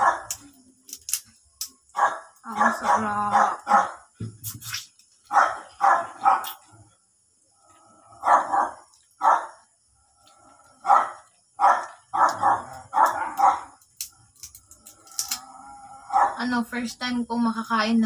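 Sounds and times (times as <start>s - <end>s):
dog barking: 0.0s - 0.4s, 1.9s - 4.1s, 5.3s - 6.6s, 8.1s - 9.7s, 10.8s - 13.8s, 16.0s - 16.4s.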